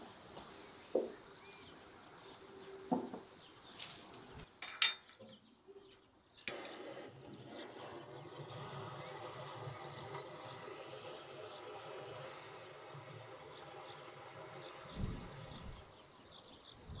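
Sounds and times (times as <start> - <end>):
torch ignition click: 6.4 - 12.8
gas torch hissing: 6.4 - 17.0.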